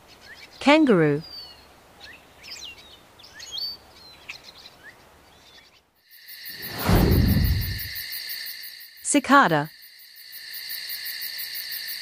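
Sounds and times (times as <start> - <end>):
deep whoosh: 6.6 - 8.0.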